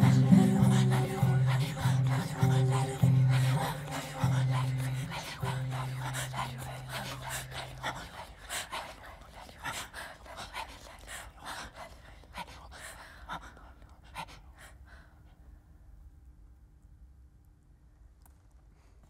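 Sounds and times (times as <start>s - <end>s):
string ensemble low note: 0.0s - 7.0s
soft breaths: 0.0s - 15.7s.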